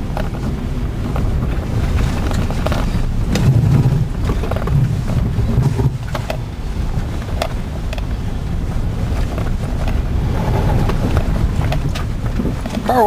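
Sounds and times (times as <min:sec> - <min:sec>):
car rattling over ruts: 0:00.0 - 0:13.0
engine and tyres rumbling: 0:00.0 - 0:13.0.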